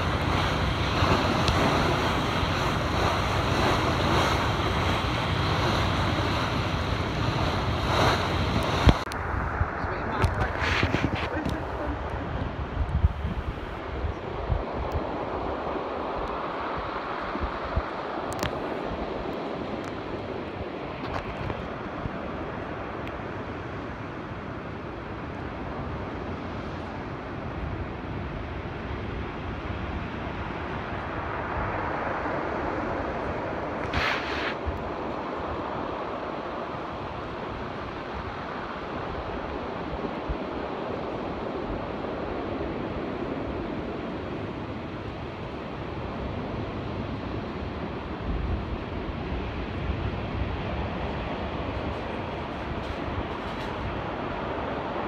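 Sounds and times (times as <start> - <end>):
loud splash hiss: 0.0 - 9.1, 33.9 - 34.6
sea water splashing around boat: 0.0 - 9.3, 10.0 - 55.0
wind buffeting microphone: 0.0 - 55.0.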